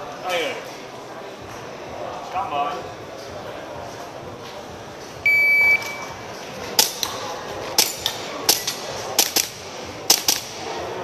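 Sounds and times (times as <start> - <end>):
shot timer start beep: 5.3 - 6.1
pistol shots: 7.8 - 10.6.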